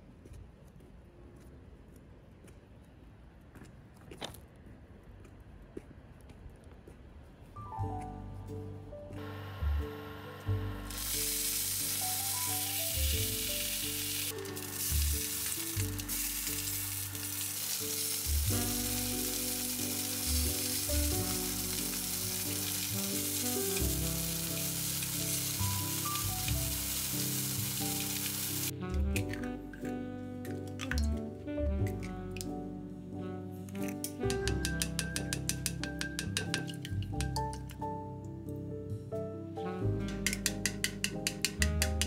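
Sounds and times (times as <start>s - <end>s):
soft background music: 7.5s - 42.0s
sausages sizzling in oil: 9.8s - 28.8s.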